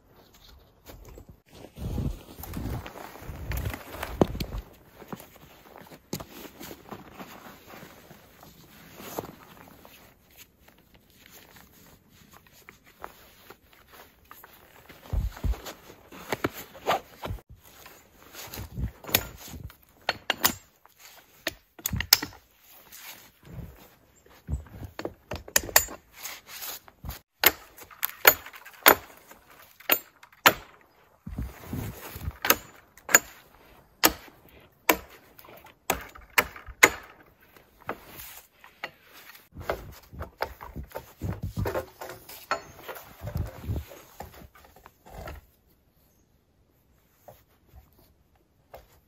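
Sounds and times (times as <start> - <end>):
footsteps in snow: 0.0 - 19.6
rustling: 0.0 - 25.2
hatchet chopping wood: 20.0 - 20.7, 21.4 - 22.4, 27.4 - 30.8, 32.2 - 33.4, 34.0 - 37.2.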